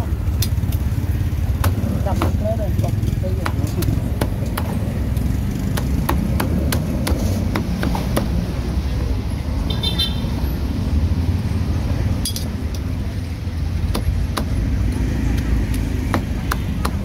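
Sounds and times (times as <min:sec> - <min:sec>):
low rumble of street traffic: 0:00.0 - 0:17.0
cleaver chopping on wooden block: 0:01.6 - 0:08.4, 0:13.9 - 0:17.0.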